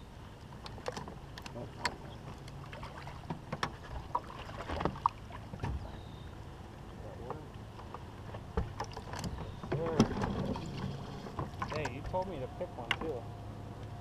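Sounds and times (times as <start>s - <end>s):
low steady hum: 0.0s - 14.0s
knocks and clicks of fishing gear: 3.2s - 3.8s.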